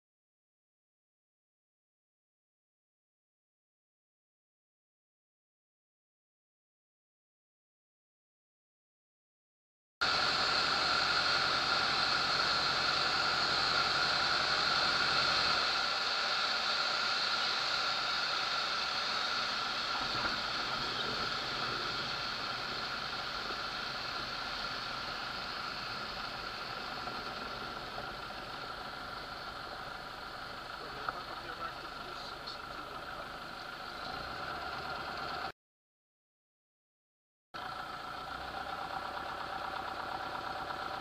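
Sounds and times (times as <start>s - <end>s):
airplane engine and propeller: 10.0s - 35.5s, 37.6s - 41.0s.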